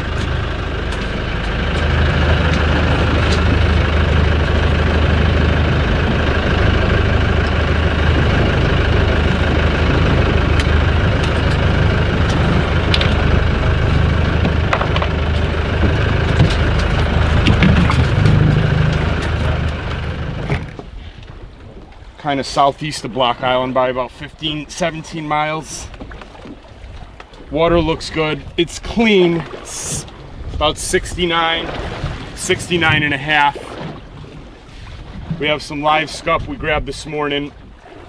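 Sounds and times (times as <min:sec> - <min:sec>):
boat engine droning: 0:00.0 - 0:38.0.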